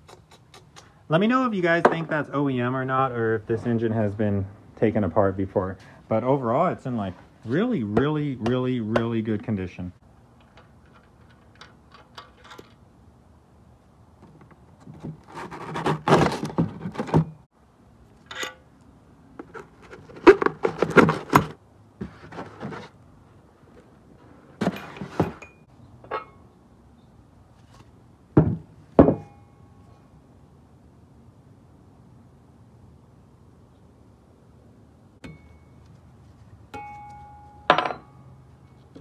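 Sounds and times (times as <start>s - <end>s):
engine parts knocking and scraping: 10.3s - 13.0s, 14.1s - 17.5s, 18.2s - 26.4s.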